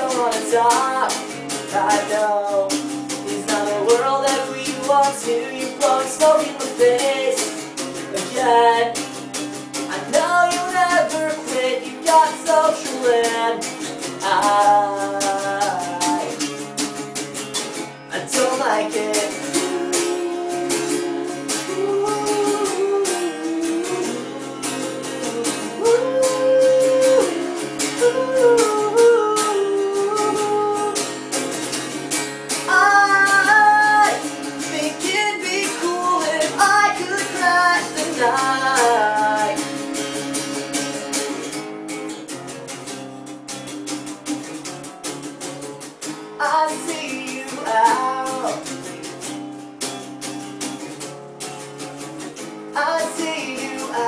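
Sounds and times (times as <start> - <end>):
man singing: 0.0 - 9.2, 9.8 - 16.6, 18.1 - 31.3, 32.5 - 40.0, 46.4 - 48.9, 52.7 - 54.0
acoustic guitar strumming: 0.0 - 54.0.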